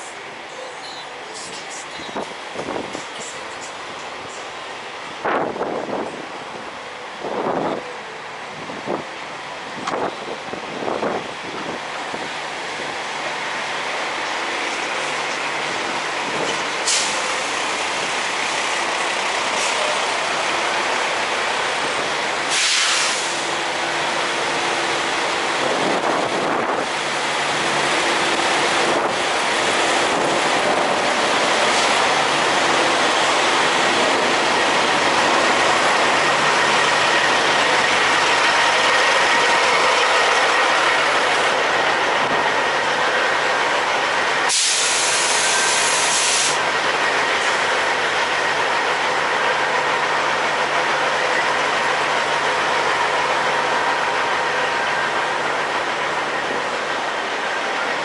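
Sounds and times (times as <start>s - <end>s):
diesel trucks idling: 0.0s - 58.0s
air hiss bursts: 22.5s - 23.4s, 44.5s - 46.6s.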